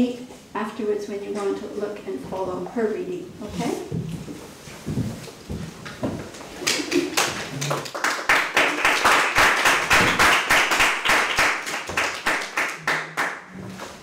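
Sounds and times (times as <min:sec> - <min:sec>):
audience applauding: 0:06.6 - 0:13.5.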